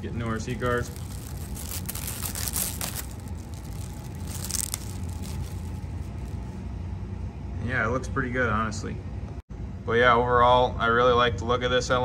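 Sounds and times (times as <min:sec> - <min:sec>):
plastic wrap crinkling: 0:00.0 - 0:06.4.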